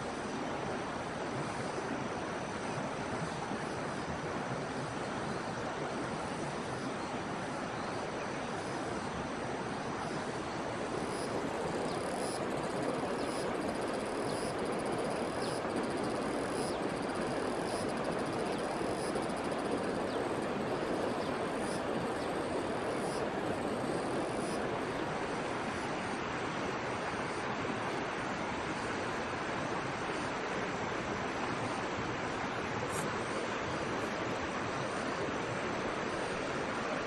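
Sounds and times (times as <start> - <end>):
high insect calls: 7.6 - 26.1
stream flowing over rocks: 9.2 - 37.0.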